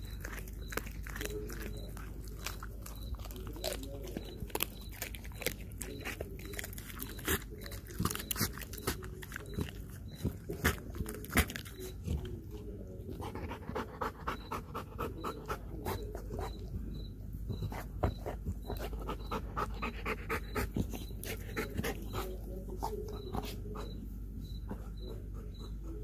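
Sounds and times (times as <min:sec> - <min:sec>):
dog panting rapidly: 0:13.1 - 0:16.7, 0:17.6 - 0:24.0.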